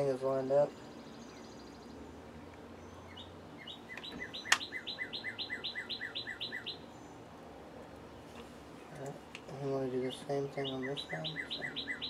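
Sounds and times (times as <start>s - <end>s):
small bird chirping: 0.5s - 12.0s
sharp click: 3.9s - 4.7s.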